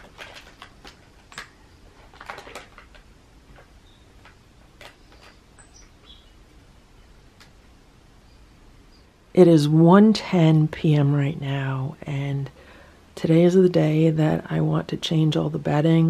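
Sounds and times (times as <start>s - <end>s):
paper crinkling under paws: 0.0s - 5.4s.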